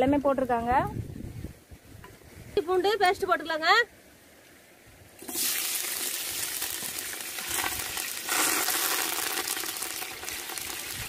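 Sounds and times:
garlic paste sizzling in oil: 5.2s - 11.0s.

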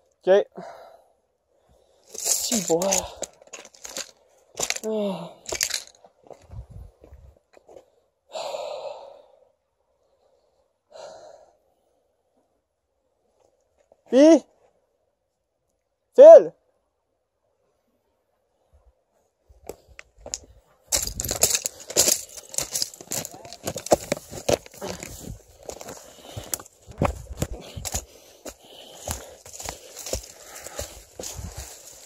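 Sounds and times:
footsteps crunching through brush: 2.1s - 7.8s, 20.2s - 32.0s
person sighing: 4.8s - 5.5s, 24.8s - 25.3s.

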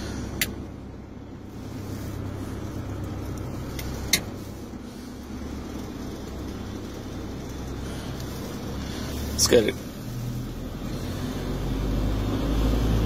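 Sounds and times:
street sweeper engine drone: 0.0s - 13.0s.

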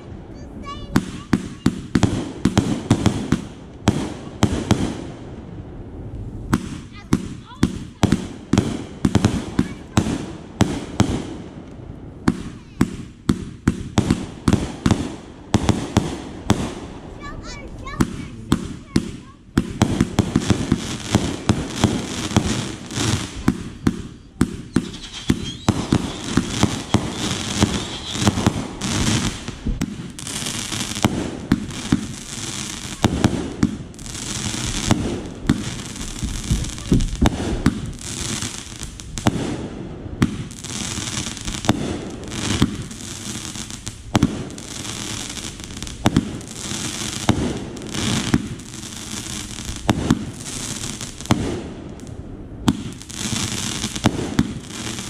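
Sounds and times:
firework bursts and crackling: 0.0s - 55.0s
firework launch thumps: 6.1s - 32.2s, 34.5s - 40.6s, 49.7s - 50.4s, 51.2s - 53.1s.

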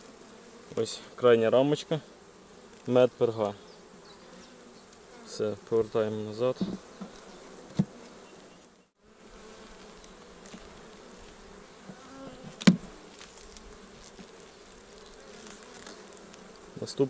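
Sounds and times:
honeybees buzzing: 0.0s - 17.0s
wooden knocks of hive frames: 6.4s - 8.2s, 11.8s - 14.5s.

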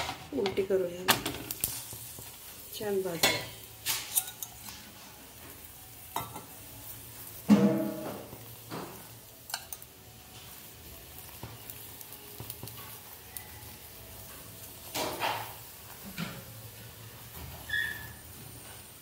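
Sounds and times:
faint frying sizzle: 0.0s - 19.0s
steel spoon scraping a griddle: 1.5s - 5.3s, 7.5s - 10.6s.

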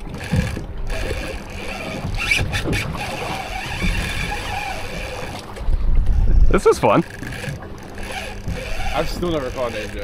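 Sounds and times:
water against boat hull: 0.0s - 10.0s
wind on microphone: 1.8s - 6.9s.

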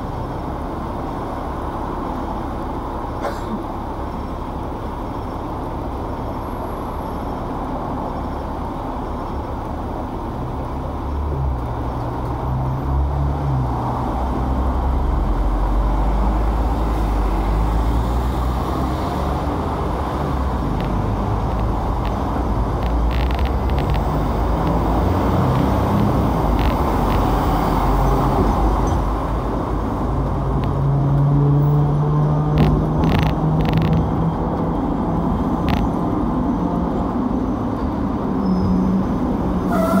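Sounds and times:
street traffic: 0.0s - 40.0s
tram rumble and motor hum: 0.0s - 40.0s.

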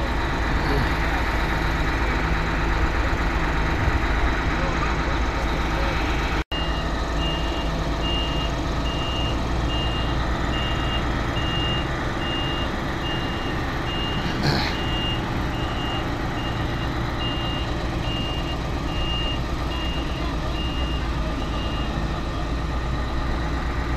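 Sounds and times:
diesel engines running: 0.0s - 23.9s
reversing alarm beeping: 6.6s - 22.1s.

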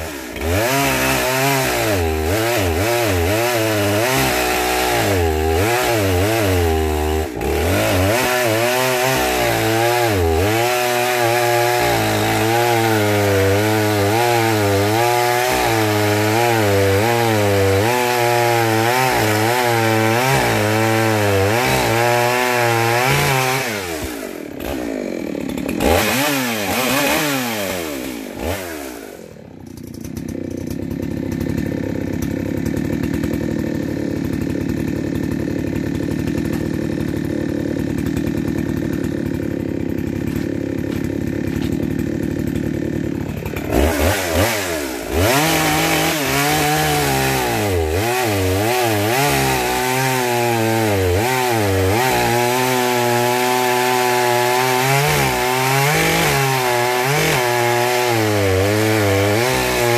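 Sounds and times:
chainsaw cutting log: 0.0s - 59.9s
chainsaw engine: 0.0s - 59.9s.

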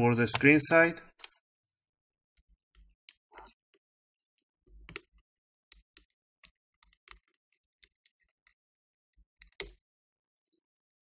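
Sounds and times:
plastic clicks and snaps: 0.3s - 0.5s.

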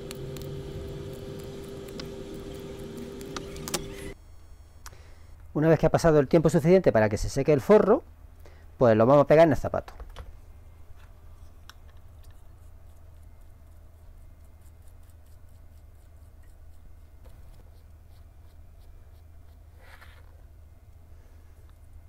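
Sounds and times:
steady low hum: 0.0s - 5.5s.

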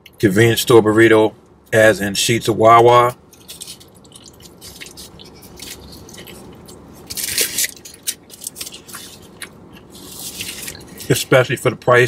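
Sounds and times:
close-up chewing with mouth clicks: 3.3s - 11.2s.

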